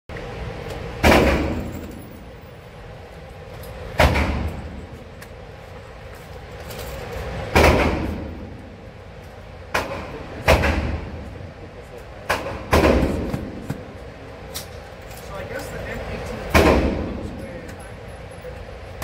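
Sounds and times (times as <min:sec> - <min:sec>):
handgun shots with echo: 0:01.0 - 0:01.9, 0:04.0 - 0:04.6.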